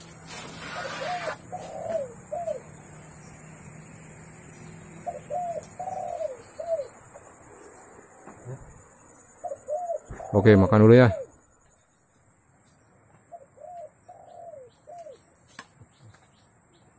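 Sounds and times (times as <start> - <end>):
short rustle: 0.0 - 1.4
dove cooing: 0.6 - 2.8, 4.8 - 7.0, 9.4 - 11.4, 13.3 - 15.2.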